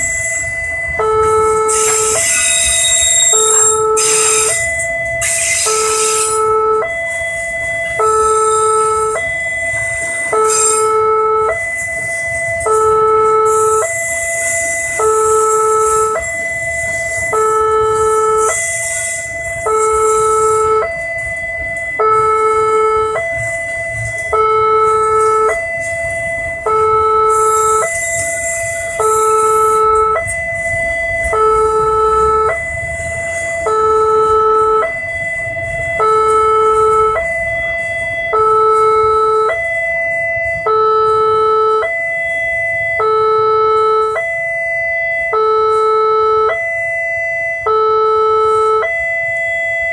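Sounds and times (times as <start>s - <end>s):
freight train rumbling past: 0.0s - 6.4s, 13.5s - 21.9s, 27.3s - 33.6s
level crossing two-tone alarm: 0.0s - 49.9s
train hissing: 1.7s - 4.6s, 5.2s - 6.4s.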